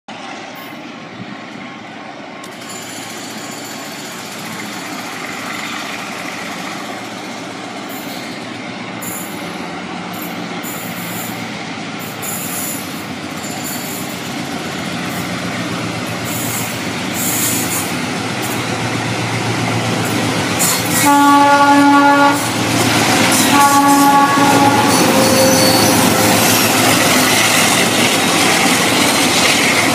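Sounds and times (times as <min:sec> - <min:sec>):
diesel locomotive engine rumble: 0:00.1 - 0:29.9
locomotive air horn: 0:20.8 - 0:22.6, 0:23.4 - 0:26.5.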